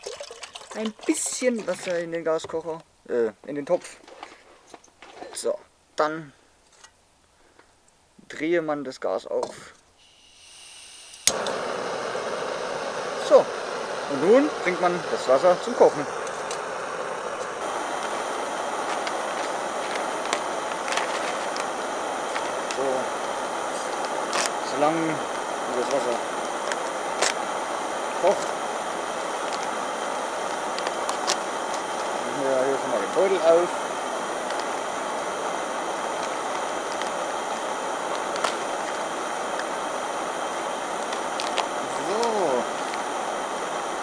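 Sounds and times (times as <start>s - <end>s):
gas burner hissing: 9.4s - 44.0s.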